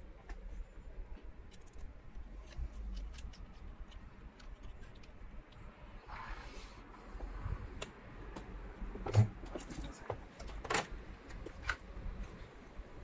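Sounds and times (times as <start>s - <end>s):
small clicks and knocks: 0.2s - 5.7s.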